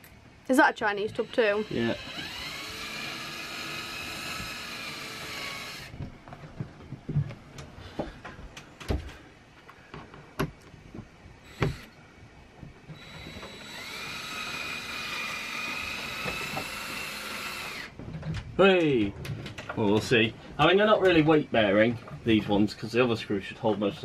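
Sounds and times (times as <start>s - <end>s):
cordless drill whirring: 1.1s - 6.0s, 11.4s - 12.0s, 13.0s - 18.0s
sharp clicks and knocks: 9.9s - 11.9s.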